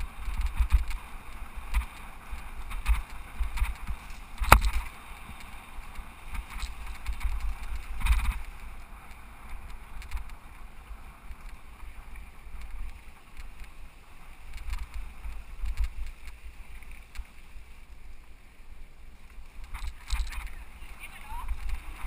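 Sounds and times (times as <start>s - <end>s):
bike rattling clicks: 0.0s - 10.6s, 14.4s - 17.4s, 19.4s - 20.6s
wind buffeting microphone: 0.0s - 17.3s, 19.5s - 22.0s.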